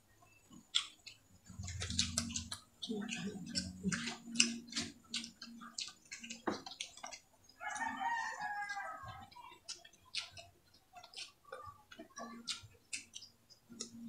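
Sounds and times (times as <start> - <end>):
chewing and wet mouth clicks: 0.3 - 14.0
rooster crowing: 7.6 - 9.2.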